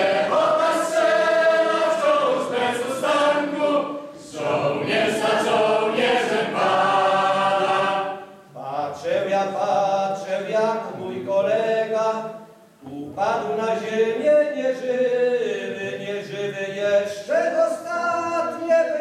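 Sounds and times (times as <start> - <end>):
mixed choir singing slow song: 0.0 - 11.8.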